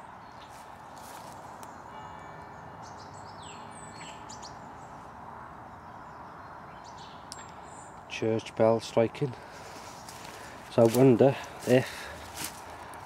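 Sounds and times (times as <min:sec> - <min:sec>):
small birds chirping: 0:00.0 - 0:13.0
steady outdoor hiss: 0:00.0 - 0:13.0
distant church bell striking: 0:01.8 - 0:03.8.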